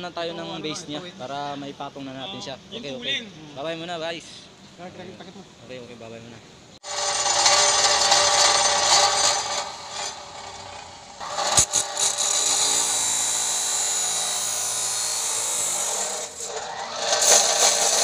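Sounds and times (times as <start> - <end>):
cut-off wheel grinding metal: 6.8 - 18.0.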